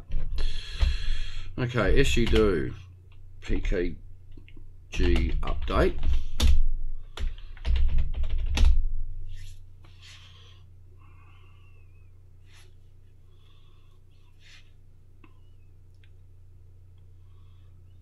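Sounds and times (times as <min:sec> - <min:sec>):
keyboard typing: 0:02.1 - 0:02.6, 0:07.2 - 0:08.8
low hum: 0:08.5 - 0:18.0.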